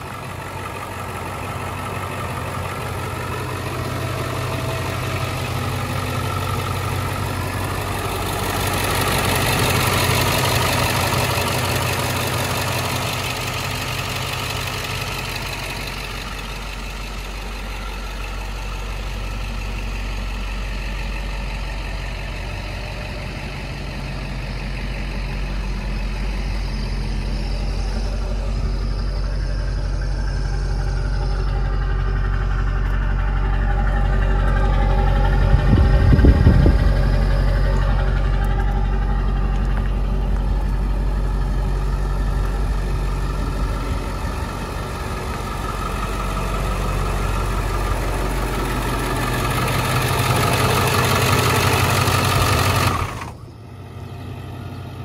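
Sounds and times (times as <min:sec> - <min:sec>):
bus engine idling: 0:00.0 - 0:55.0
exhaust rumble: 0:00.0 - 0:55.0.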